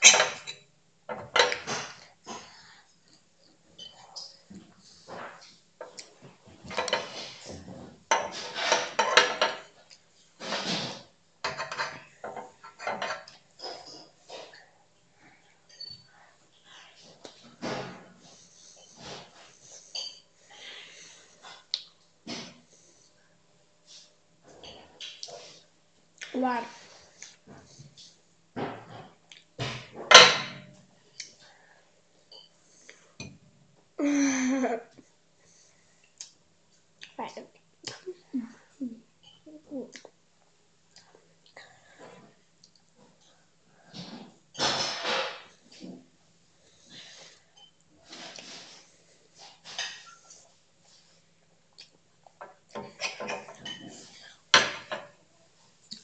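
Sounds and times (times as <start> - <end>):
cutlery clinking on a plate: 0.0 - 2.0, 8.1 - 9.7, 11.4 - 14.1, 29.6 - 30.7.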